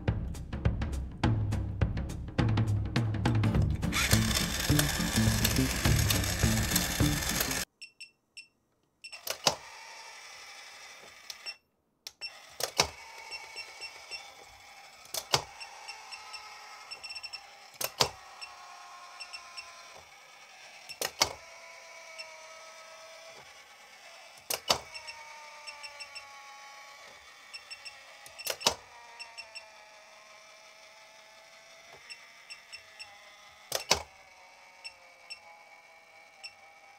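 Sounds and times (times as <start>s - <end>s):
toy motor whine: 3.9s - 7.7s, 9.1s - 11.6s, 12.2s - 36.9s.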